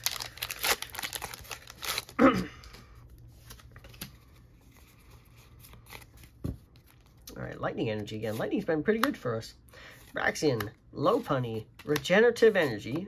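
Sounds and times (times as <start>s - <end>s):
foil wrapper crinkling and tearing: 0.0s - 2.2s.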